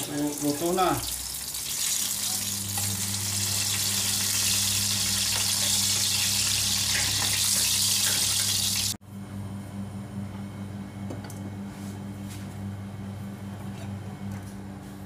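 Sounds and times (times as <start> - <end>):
oil sizzling in a frying pan: 0.0 - 9.0.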